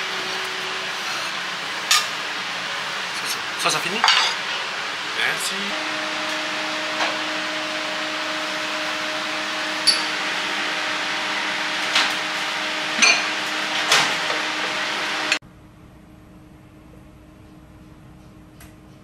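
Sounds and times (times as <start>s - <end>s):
ventilation hum and hiss: 0.0s - 5.8s.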